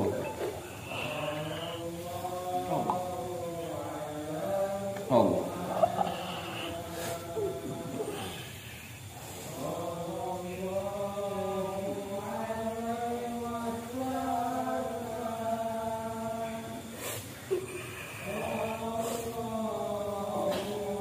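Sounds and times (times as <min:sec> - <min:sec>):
man chanting slowly: 0:00.0 - 0:17.0, 0:17.8 - 0:21.0.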